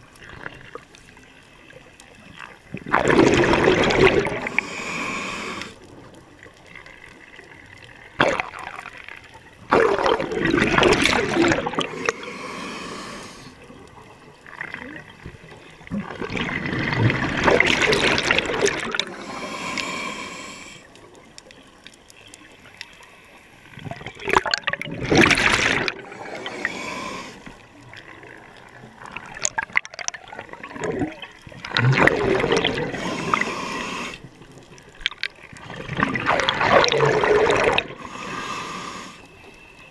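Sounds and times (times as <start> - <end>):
exhaled bubbles gurgling: 1.7 - 21.4, 23.7 - 39.3
regulator inhalations: 4.4 - 5.8, 11.9 - 13.6, 19.0 - 20.9, 26.0 - 27.6, 32.9 - 34.3, 38.0 - 39.4.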